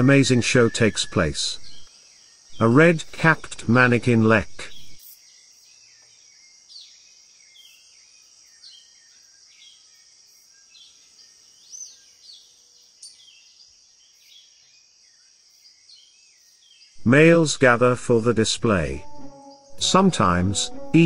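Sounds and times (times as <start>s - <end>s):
insect hiss: 0.0s - 2.6s, 4.7s - 17.0s
bird chirping calls: 0.0s - 5.2s.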